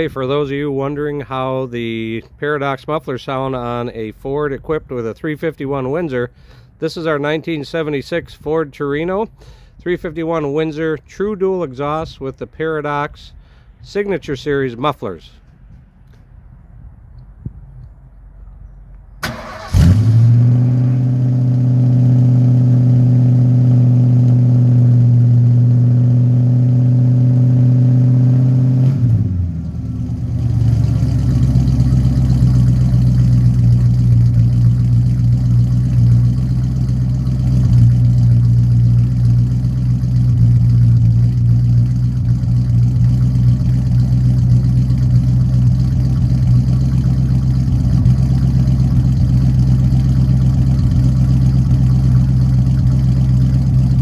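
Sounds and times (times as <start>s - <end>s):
car engine idling: 0.0s - 54.0s
engine cranking: 19.2s - 20.3s, 30.6s - 54.0s.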